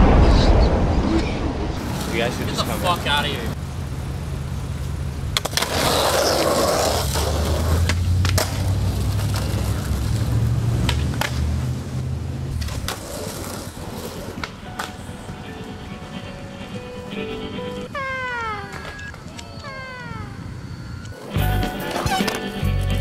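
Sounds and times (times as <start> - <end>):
skateboard wheels rolling: 1.8 - 23.0
skateboard clacks: 5.3 - 11.6, 12.5 - 17.8.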